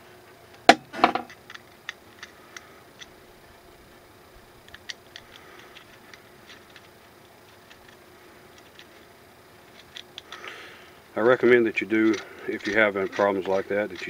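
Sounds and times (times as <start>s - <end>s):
metal gun parts clicking: 4.7s - 9.0s, 11.4s - 14.0s
metal parts rattling: 11.3s - 14.0s.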